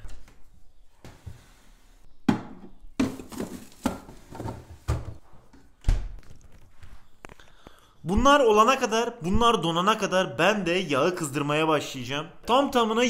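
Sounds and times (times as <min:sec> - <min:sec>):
plastic drawers knocking and clattering: 0:02.3 - 0:05.2.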